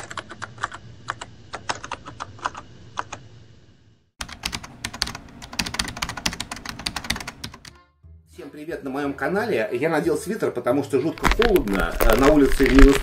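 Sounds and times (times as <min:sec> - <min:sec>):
rapid irregular clicking: 0:04.2 - 0:07.6.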